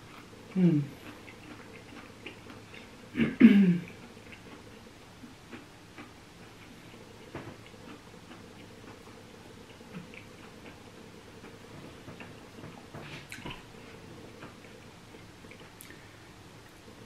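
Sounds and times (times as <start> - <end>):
person chewing food: 0.0 - 3.1, 3.8 - 16.1
person humming: 0.5 - 1.0.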